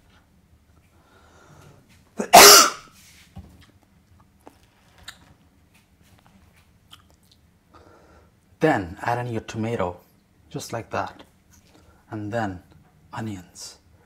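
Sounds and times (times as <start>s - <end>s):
person sneezing: 2.2s - 2.9s.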